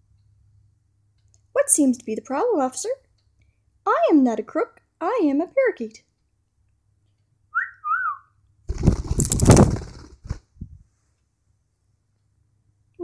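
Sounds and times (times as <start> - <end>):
soft clicks: 0.1 - 1.5
loud rustling flurry: 8.7 - 10.7.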